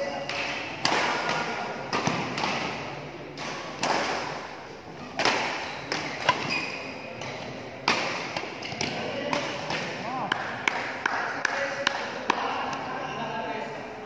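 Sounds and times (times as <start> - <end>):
racket smacking shuttlecock: 0.3 - 6.6, 7.2 - 9.9.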